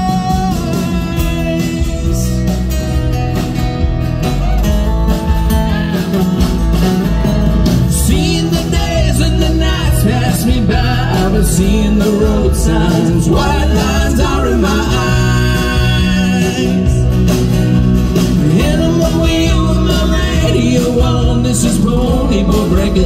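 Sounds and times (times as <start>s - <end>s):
men singing: 0.0s - 2.8s, 7.9s - 17.3s, 18.3s - 23.0s
acoustic guitars strummed: 0.0s - 23.0s.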